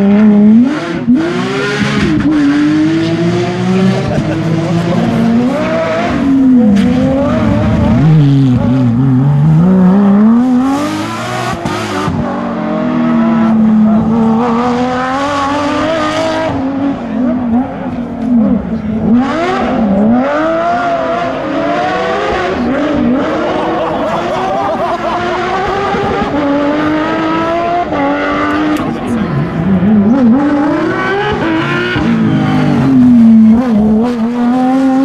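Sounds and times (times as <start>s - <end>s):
rally car engine at full throttle: 0.0s - 35.0s.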